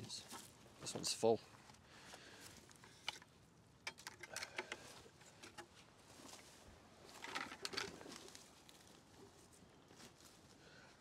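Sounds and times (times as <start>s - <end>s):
plastic bucket rustling clatter: 7.1s - 8.2s.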